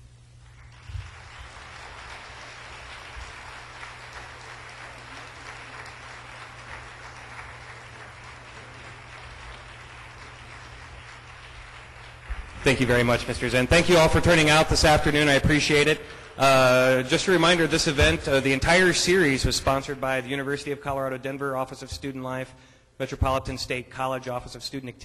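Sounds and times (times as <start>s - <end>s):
audience applauding: 0.4s - 19.3s.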